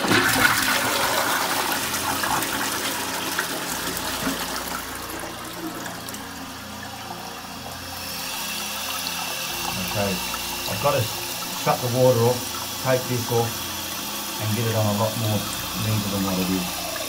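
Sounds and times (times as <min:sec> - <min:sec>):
cistern refilling hiss: 0:00.0 - 0:17.0
toilet flushing: 0:00.0 - 0:17.0.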